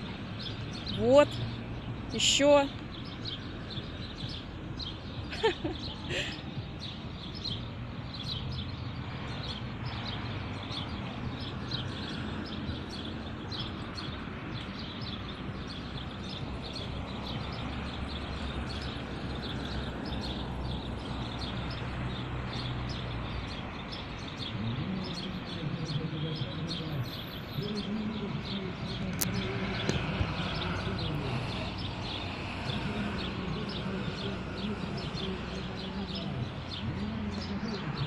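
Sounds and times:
distant city traffic hum: 0:00.0 - 0:38.0
small birds chirping: 0:00.0 - 0:38.0.

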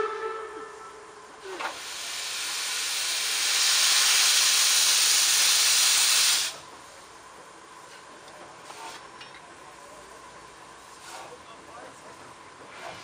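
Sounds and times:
steam locomotive hissing: 0:00.0 - 0:06.7.

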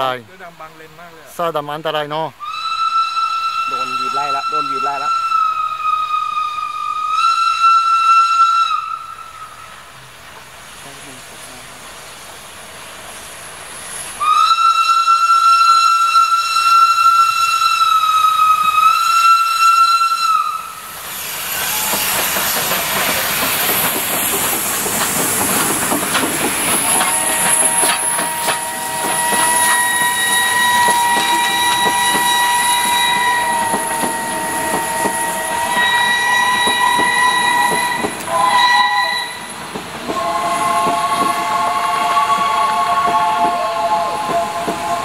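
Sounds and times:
loud hiss of steam venting: 0:00.0 - 0:45.0
steam whistle: 0:02.4 - 0:09.9, 0:14.1 - 0:22.2, 0:26.7 - 0:45.0.

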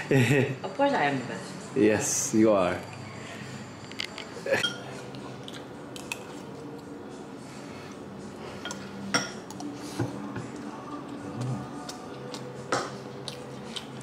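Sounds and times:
spoons clinking against bowls: 0:03.9 - 0:05.2, 0:08.6 - 0:09.7.

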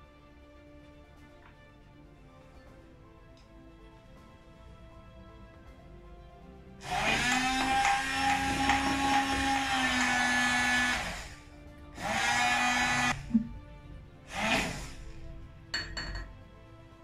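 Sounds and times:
immersion blender running in glass jar: 0:06.8 - 0:11.4, 0:12.0 - 0:13.2, 0:14.3 - 0:15.0.

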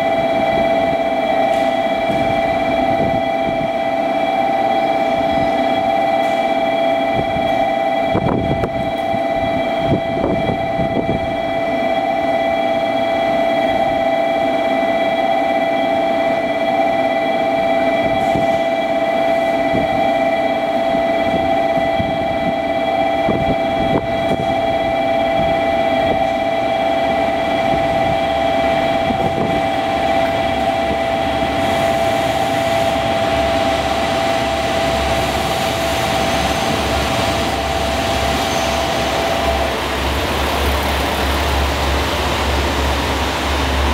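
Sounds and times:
diesel railcar engine rumble: 0:00.0 - 0:43.9
train wheel noise: 0:00.0 - 0:43.9
high-pitched hum: 0:21.3 - 0:43.9.

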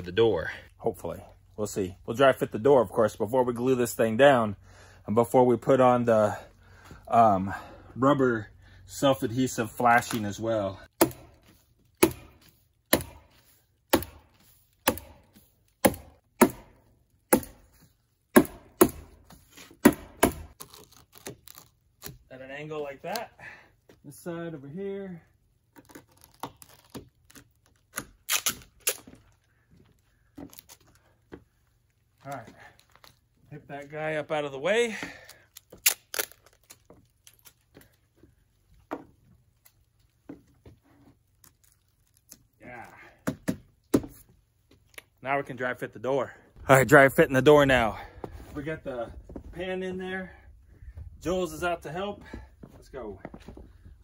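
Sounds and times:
paper crinkling and tearing: 0:20.5 - 0:22.3, 0:25.7 - 0:29.4, 0:35.3 - 0:38.0, 0:41.2 - 0:42.8.

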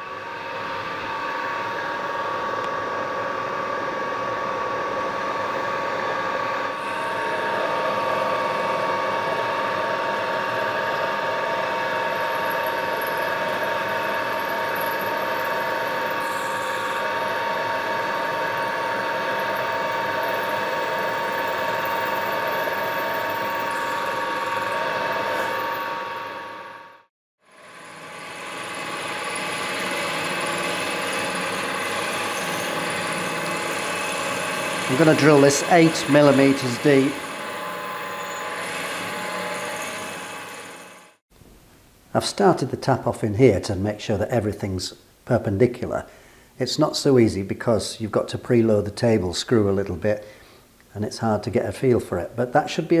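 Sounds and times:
milling machine gear whine: 0:00.0 - 0:41.2
drill boring into metal casting: 0:06.6 - 0:26.4, 0:27.5 - 0:41.2.

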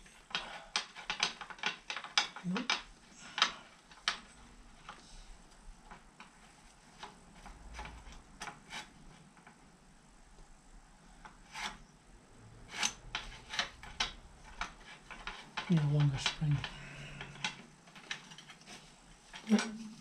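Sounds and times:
small metal parts clicking: 0:12.8 - 0:19.8.

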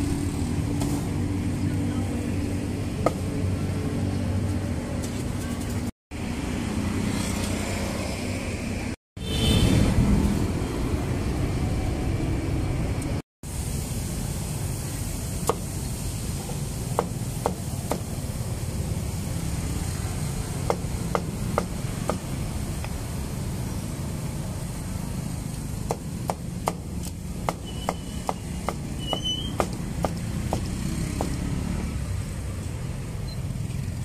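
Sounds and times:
street traffic noise: 0:00.0 - 0:34.0
cleaver chopping meat on wood: 0:16.9 - 0:18.1, 0:25.8 - 0:28.9, 0:29.6 - 0:31.4.

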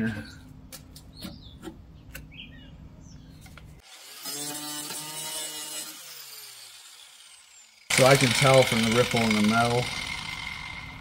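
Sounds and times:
angle grinder grinding steel: 0:03.8 - 0:11.0.

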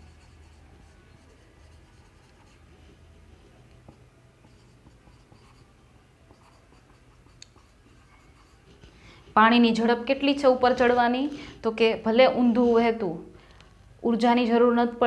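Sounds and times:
marker pen writing on whiteboard: 0:00.0 - 0:09.6.

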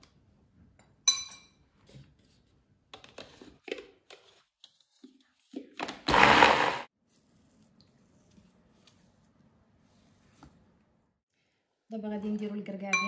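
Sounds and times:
metal spoon clinking glass bowl: 0:01.1 - 0:01.6
food chopper motor grinding: 0:06.1 - 0:06.9.

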